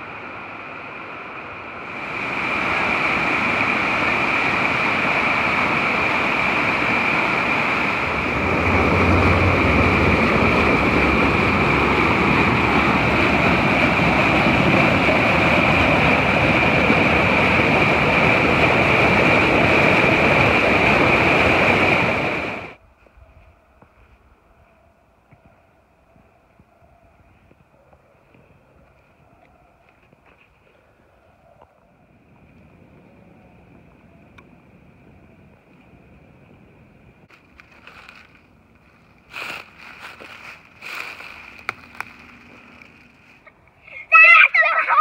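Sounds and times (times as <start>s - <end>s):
water rushing over rocks: 0.0s - 22.8s.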